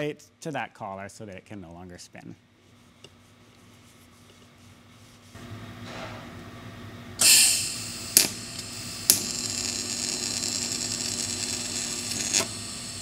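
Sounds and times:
welding arc crackling: 7.2 - 13.0.

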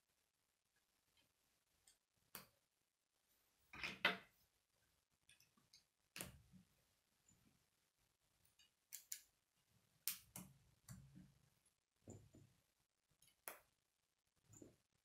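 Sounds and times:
plastic rods snapping together: 8.9 - 9.3.

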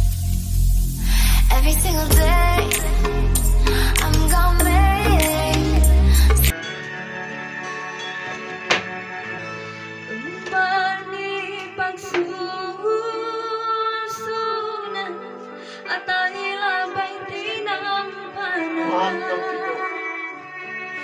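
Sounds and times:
instrumental backing music: 0.0 - 21.0
woman singing with vibrato: 1.3 - 6.5, 10.1 - 20.3.

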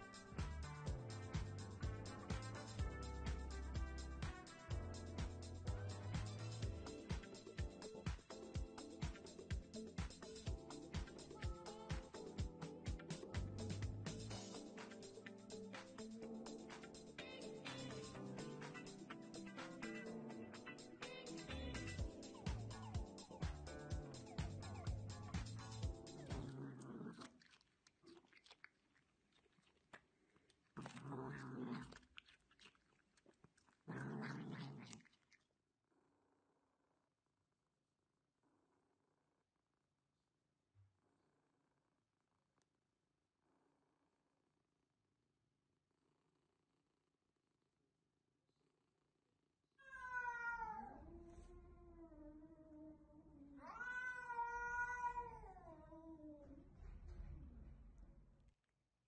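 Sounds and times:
cat growling: 26.2 - 27.5, 30.7 - 32.8, 33.7 - 35.2, 49.8 - 56.6
cat chewing cucumber: 26.4 - 35.5.

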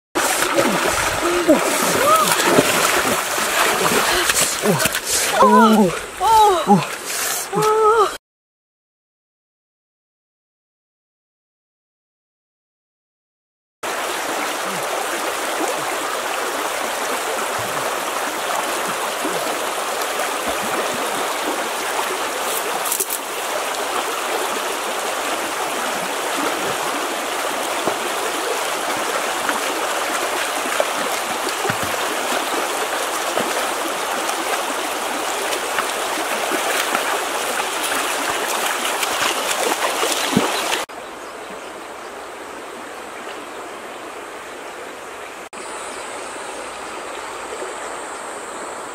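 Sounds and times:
stream babbling over stones: 0.2 - 8.0, 13.9 - 44.1.

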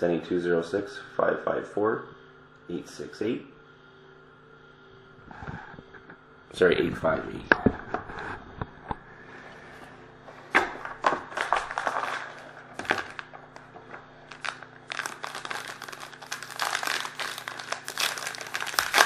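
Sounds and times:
foil wrapper crinkling: 11.0 - 19.0.

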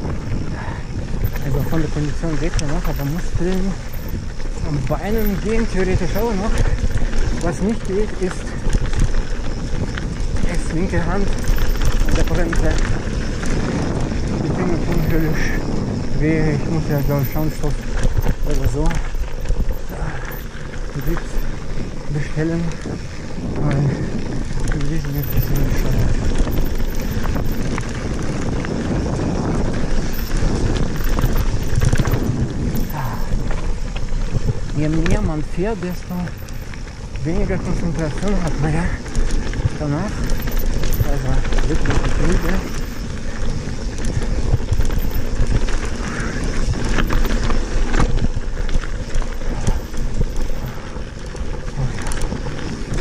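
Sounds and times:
bike clicks and rattles: 0.0 - 53.0
bike tyres on gravel: 0.0 - 53.0
wind buffeting microphone: 0.0 - 53.0.

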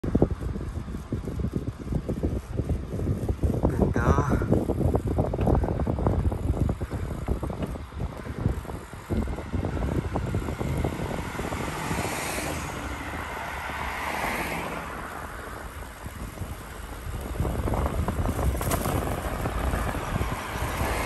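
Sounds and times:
wind buffeting microphone: 0.0 - 21.0
car tyres passing: 4.4 - 21.0.

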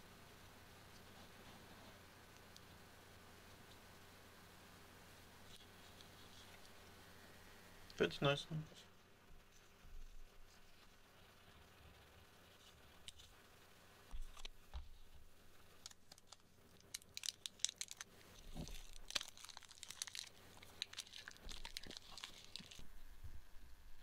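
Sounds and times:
plastic packaging crinkling: 15.7 - 22.8.

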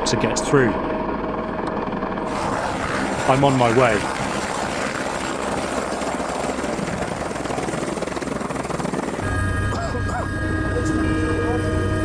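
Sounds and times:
helicopter rotor chopping: 0.8 - 12.0.

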